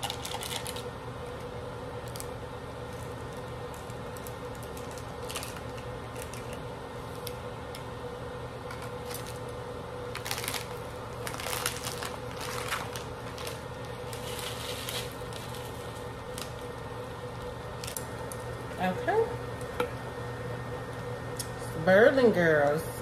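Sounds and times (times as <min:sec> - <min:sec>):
plastic packets crinkling: 0:00.0 - 0:00.9, 0:03.3 - 0:06.6, 0:10.1 - 0:16.8, 0:17.8 - 0:18.5
steady low hum: 0:00.0 - 0:23.0.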